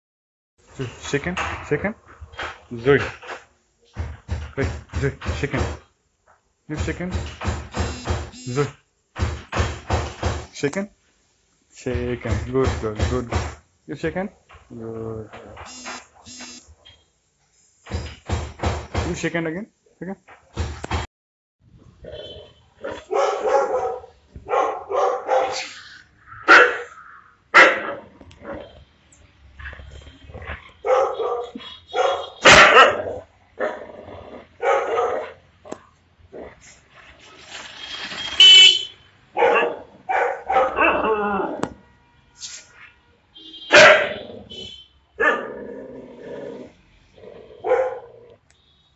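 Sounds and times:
dog barking: 22.2 - 25.7, 26.4 - 28.0, 30.7 - 33.8, 34.6 - 35.4, 39.4 - 41.1, 43.7 - 45.6, 47.6 - 48.2.

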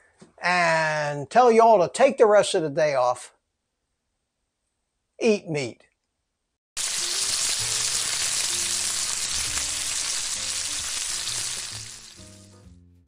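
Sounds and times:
bacon sizzling in a frying pan: 6.8 - 12.7.

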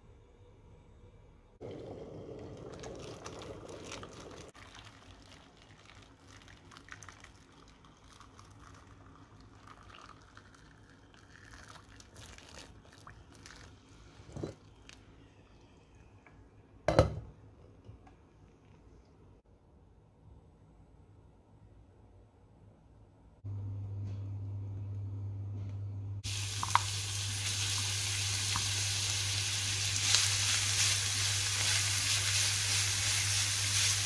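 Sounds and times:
water pouring into glass bowl: 1.6 - 13.8, 26.3 - 29.1.

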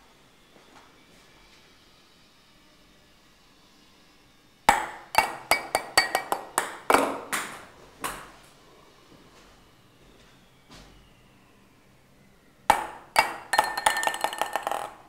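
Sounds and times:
ball clinking on glass tumblers: 4.8 - 6.9, 12.7 - 15.0.

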